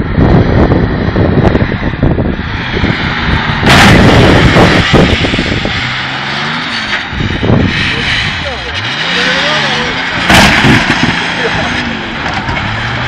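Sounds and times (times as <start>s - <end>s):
engine running hard: 0.0s - 13.0s
metal crunching: 2.1s - 13.0s.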